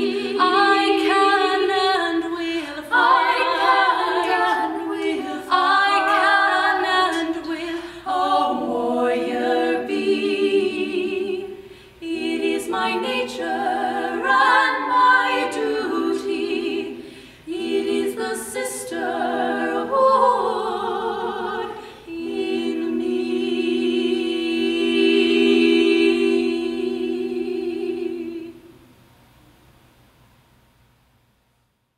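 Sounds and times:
women singing a cappella: 0.0 - 28.8.

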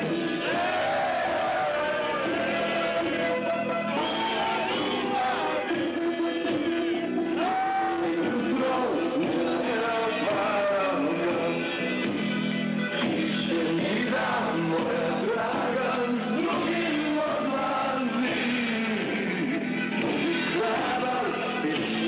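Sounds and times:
men singing: 0.0 - 11.8, 13.0 - 22.0
sustained instrumental notes: 15.8 - 17.2.

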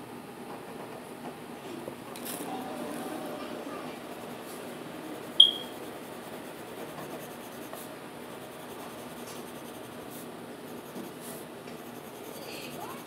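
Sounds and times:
pencil scratching on paper: 3.4 - 13.0
sharp high ping: 5.4 - 5.7.

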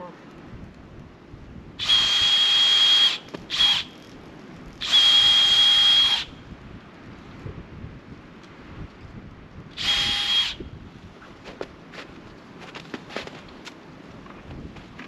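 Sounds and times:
power drill whining into wood: 1.8 - 4.0, 4.8 - 6.3, 9.8 - 10.6.

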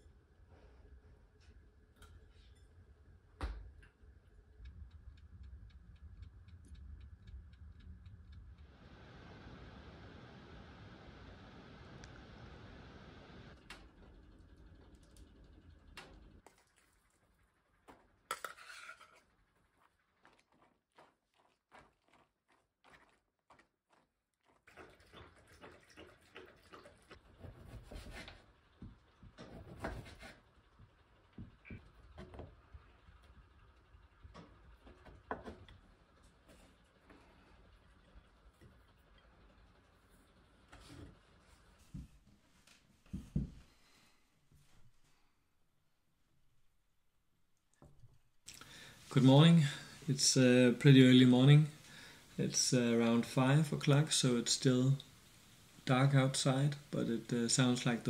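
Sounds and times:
soft steady hiss: 0.0 - 14.4, 30.4 - 58.0
spoon stirring food in bowl: 17.9 - 27.1.

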